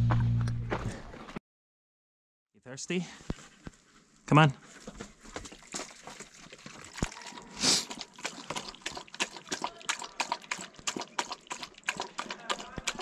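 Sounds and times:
dog lapping water: 0:05.4 - 0:13.0
water poured into plastic bowl: 0:05.4 - 0:13.0.

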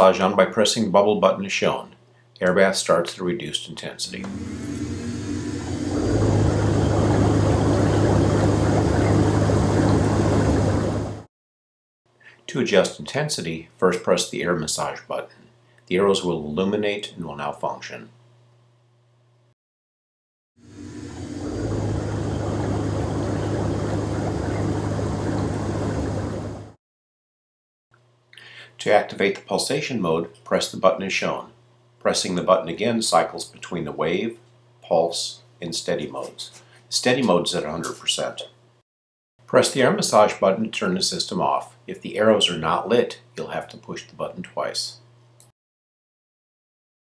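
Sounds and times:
blower low hum: 0:04.0 - 0:11.3, 0:20.6 - 0:26.8
rushing air: 0:04.4 - 0:11.3, 0:20.7 - 0:26.8.

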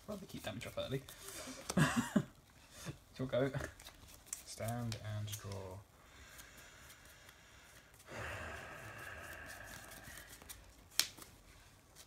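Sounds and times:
person sighing: 0:08.1 - 0:10.4
cards clicking on playmat: 0:09.7 - 0:11.4.

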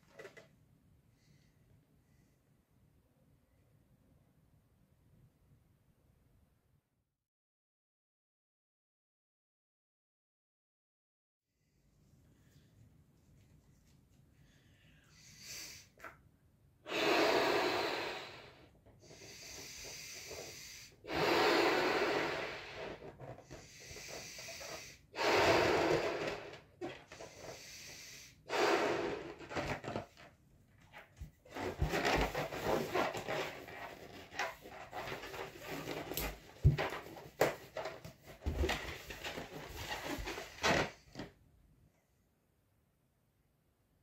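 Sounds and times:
quiet breathing: 0:01.0 - 0:02.7, 0:14.2 - 0:16.0, 0:16.9 - 0:29.6
breaths blown into balloon: 0:16.9 - 0:29.8
balloon rubbing and crackling: 0:16.9 - 0:30.2, 0:31.0 - 0:41.2.

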